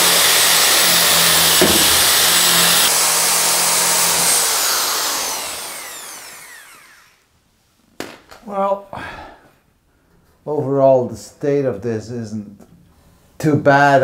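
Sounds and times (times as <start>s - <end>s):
drill wire brush scouring metal: 0.0s - 7.2s.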